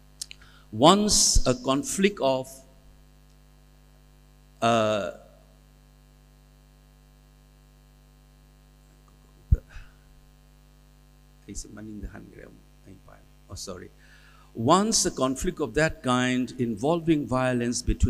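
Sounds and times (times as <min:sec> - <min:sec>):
electrical mains hum: 0:00.0 - 0:18.0
person speaking: 0:11.4 - 0:14.0, 0:14.6 - 0:18.0.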